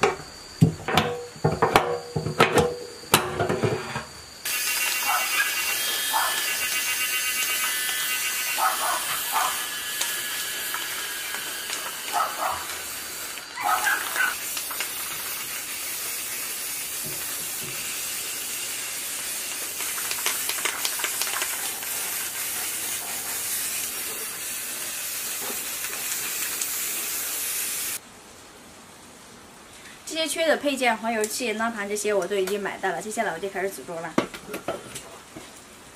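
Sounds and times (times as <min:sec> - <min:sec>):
spray paint can hissing: 0:04.4 - 0:28.0.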